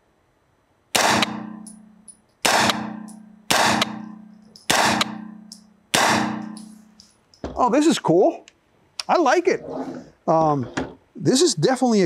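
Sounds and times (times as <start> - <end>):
carbine gunshots ringing: 0.9 - 7.0.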